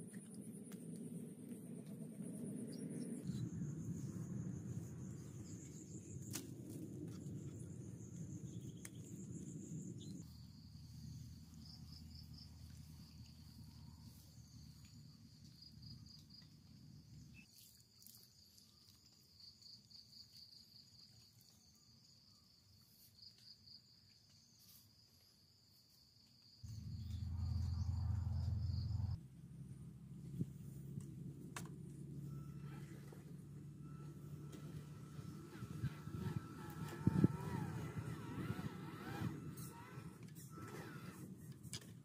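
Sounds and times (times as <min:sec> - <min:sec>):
loud low rumble: 0:26.7 - 0:32.0
low rumble: 0:26.7 - 0:33.3.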